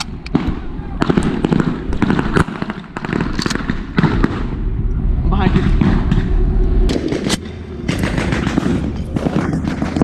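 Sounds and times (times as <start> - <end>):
steady low rumble: 0.0 - 10.0
blank rifle gunfire: 6.9 - 10.0.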